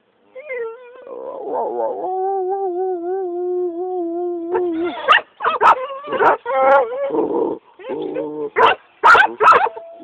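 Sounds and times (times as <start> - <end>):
dog yelping: 4.8 - 7.1, 8.6 - 10.0.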